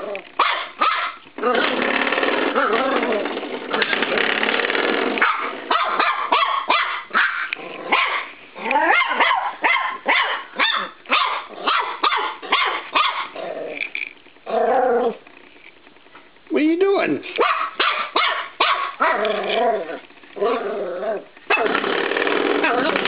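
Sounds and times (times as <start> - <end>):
puppy growling: 0.0 - 0.4, 1.1 - 15.3, 18.0 - 23.0
puppy yapping: 0.4 - 1.8, 5.2 - 13.4, 17.4 - 21.8, 22.6 - 23.0.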